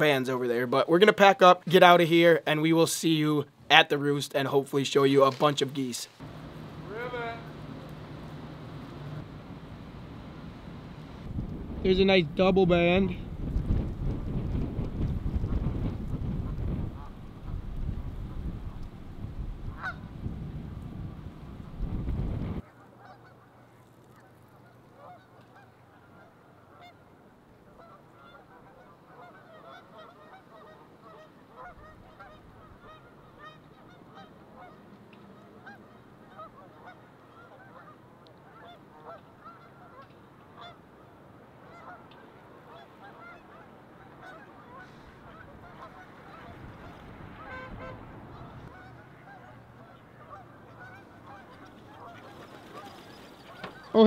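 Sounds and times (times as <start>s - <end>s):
geese honking: 6.2s - 10.5s, 19.7s - 20.1s, 22.6s - 23.6s, 24.2s - 27.1s, 27.7s - 40.8s, 41.6s - 54.0s.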